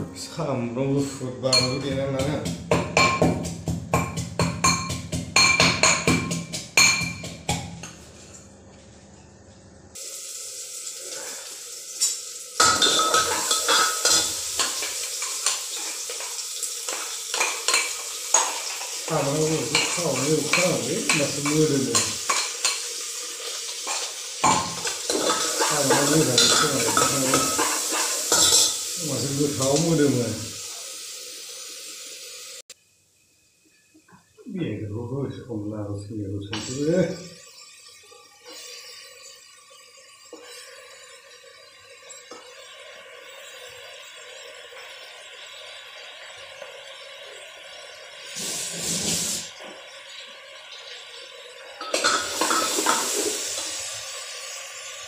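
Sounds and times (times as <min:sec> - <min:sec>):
man talking: 0:00.0 - 0:02.6, 0:19.1 - 0:22.2, 0:25.6 - 0:27.6, 0:29.0 - 0:30.5, 0:34.4 - 0:37.3
food sizzling in pan: 0:01.2 - 0:08.8, 0:09.9 - 0:55.0
pestle pounding in mortar: 0:01.9 - 0:07.8.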